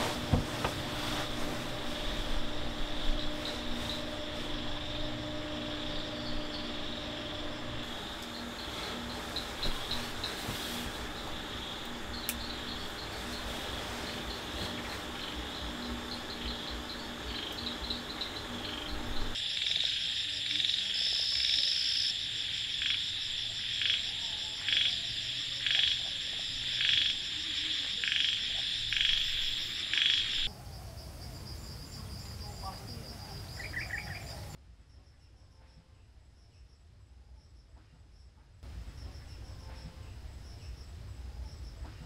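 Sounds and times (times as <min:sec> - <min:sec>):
high-pitched insect chorus: 0:01.0 - 0:34.6.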